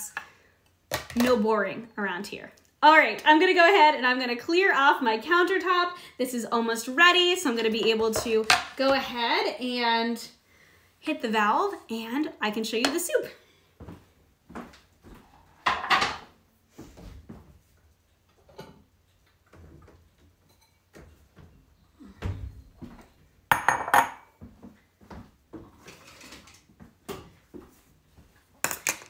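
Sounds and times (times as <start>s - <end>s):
dishes knocking and clinking: 15.6s - 16.3s, 23.5s - 24.4s.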